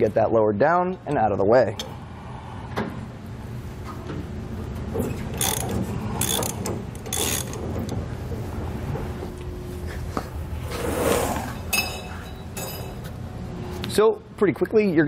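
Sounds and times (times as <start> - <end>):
winch rattling and clicking: 4.9 - 8.1
tire scraping on concrete: 10.5 - 11.7.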